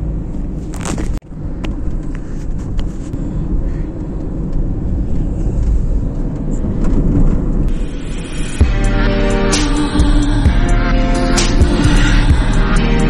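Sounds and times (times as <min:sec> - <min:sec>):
road and wind noise in car: 0:00.0 - 0:08.2.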